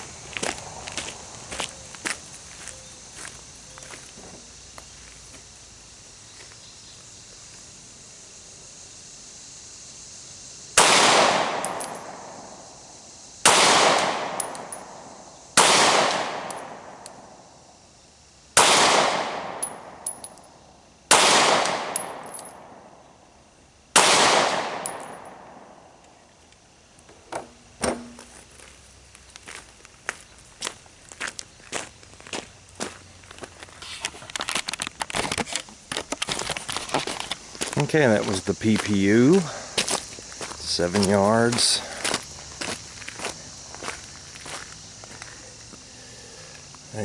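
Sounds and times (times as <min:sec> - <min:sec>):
pistol shots echoing: 0:10.8 - 0:12.3, 0:13.4 - 0:14.9, 0:15.6 - 0:17.0, 0:18.6 - 0:20.0, 0:21.1 - 0:22.7, 0:24.0 - 0:25.6.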